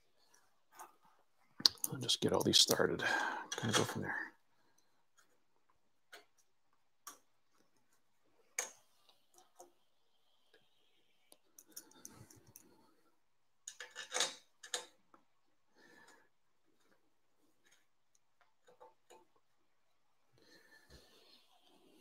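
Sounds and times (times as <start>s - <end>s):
small metal bolts clicking: 13.6s - 15.0s.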